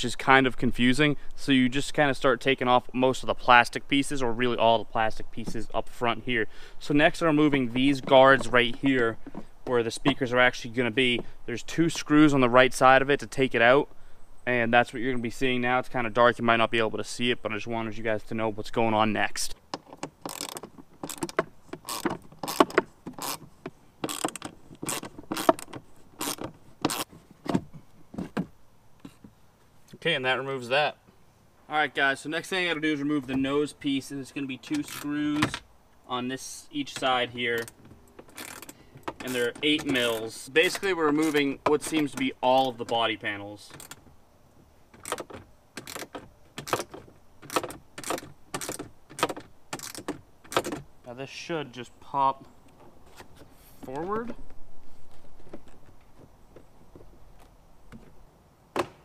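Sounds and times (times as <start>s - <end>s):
socket ratchet clicking: 37.6s - 40.3s, 45.0s - 50.8s.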